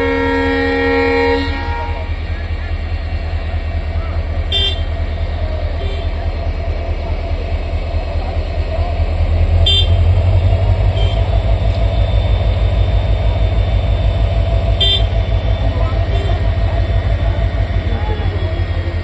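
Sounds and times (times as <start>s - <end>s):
short high horn toots: 0.0s - 2.1s, 14.8s - 15.2s
machine engine throbbing: 0.0s - 19.0s.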